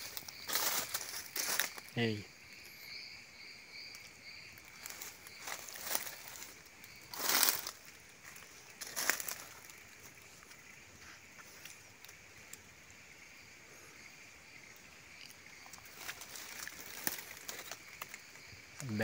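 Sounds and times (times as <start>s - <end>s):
footsteps crunching on dry leaves: 0.0s - 1.9s, 4.6s - 11.6s, 15.9s - 18.2s
forest insects droning: 0.0s - 19.0s.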